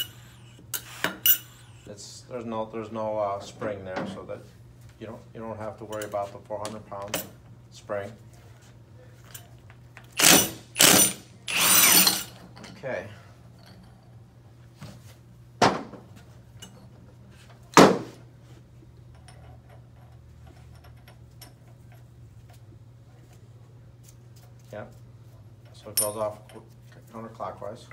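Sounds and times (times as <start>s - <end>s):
impact wrench bursts: 0.0s - 1.9s, 10.1s - 12.3s.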